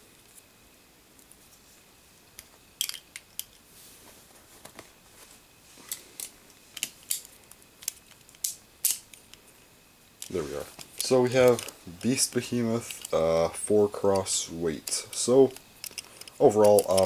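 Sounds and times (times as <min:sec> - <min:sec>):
plastic toy parts clicking: 0:14.1 - 0:17.0.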